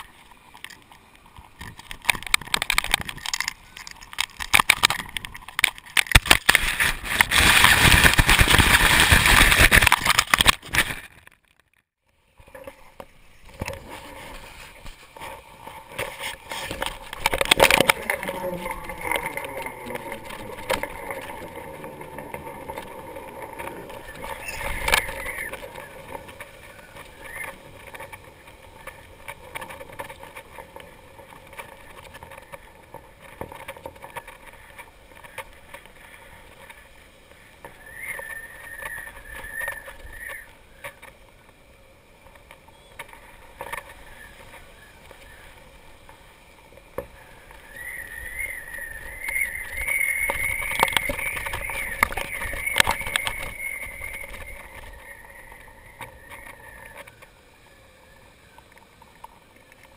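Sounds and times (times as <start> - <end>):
wind noise on camera: 0.0 - 11.4, 12.4 - 41.6, 42.2 - 57.3
wavering high hum: 12.6 - 59.9.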